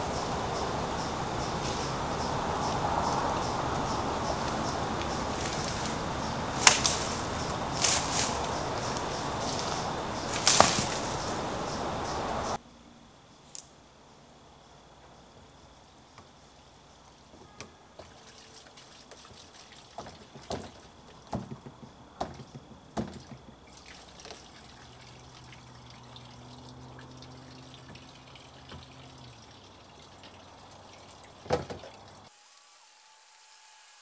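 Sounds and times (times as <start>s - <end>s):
water trickling in plastic barrel: 18.0s - 21.8s, 22.6s - 32.3s.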